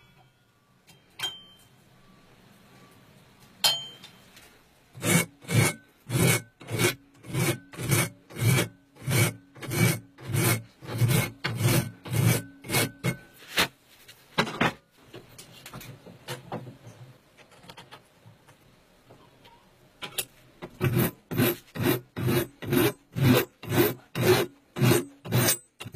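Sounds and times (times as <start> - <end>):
hand file scraping metal: 5.0 - 13.6, 20.6 - 25.9.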